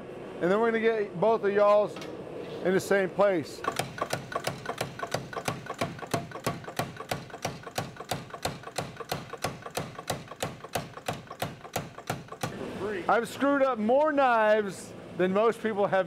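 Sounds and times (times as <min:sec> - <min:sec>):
power hammer striking hot steel: 0:03.6 - 0:12.6.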